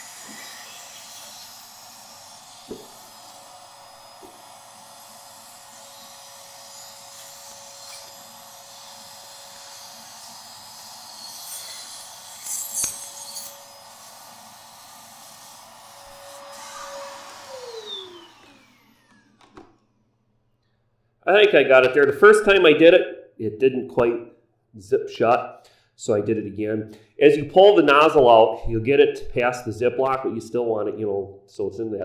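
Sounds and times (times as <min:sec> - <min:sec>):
vacuum cleaner whining: 0:00.0 - 0:20.1.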